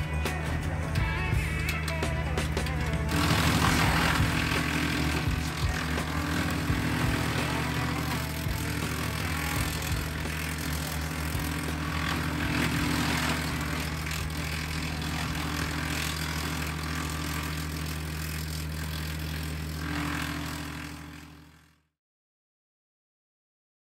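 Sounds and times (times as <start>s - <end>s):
wood chipper engine drone: 0.0s - 21.9s
branches being chipped: 3.1s - 20.7s.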